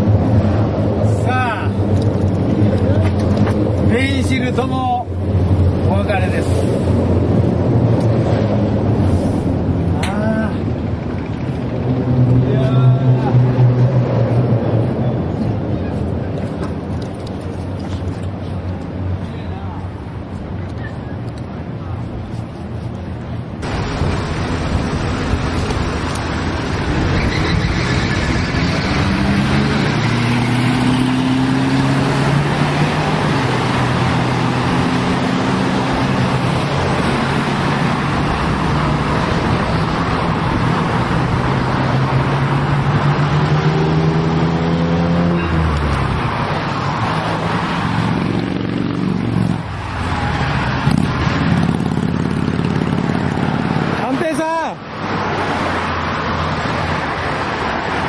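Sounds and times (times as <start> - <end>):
passing car and truck engines: 0.0 - 58.0
tyre and road noise: 0.0 - 58.0.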